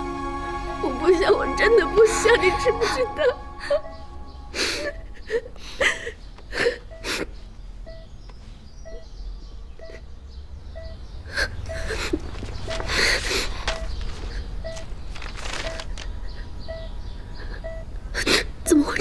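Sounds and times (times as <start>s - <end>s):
woman sobbing: 0.7s - 7.3s, 11.3s - 12.3s
patient monitor beeps: 2.3s - 5.5s, 6.6s - 8.1s, 8.8s - 9.1s, 9.8s - 10.0s, 10.8s - 11.0s, 11.6s - 15.0s, 15.6s - 18.0s.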